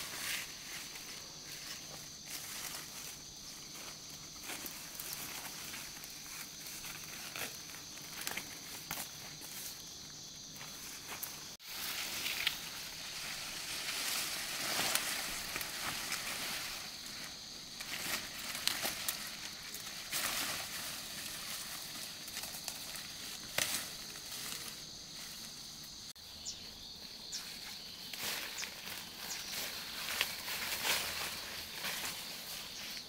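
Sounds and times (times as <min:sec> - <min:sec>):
rustling: 0:10.5 - 0:25.6, 0:27.5 - 0:33.0.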